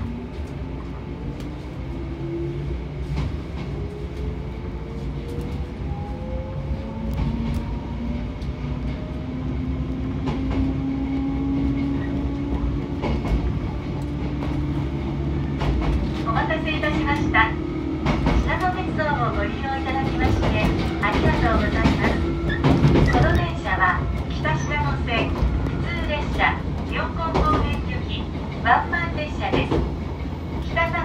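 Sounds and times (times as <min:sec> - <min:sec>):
train running rumble: 0:00.0 - 0:31.0.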